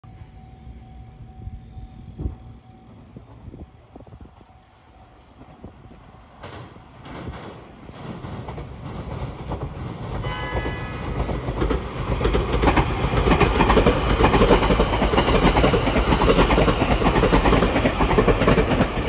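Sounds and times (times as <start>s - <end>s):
train wheels clattering over rail joints: 6.4s - 19.0s
electronic train horn toot: 10.2s - 11.3s.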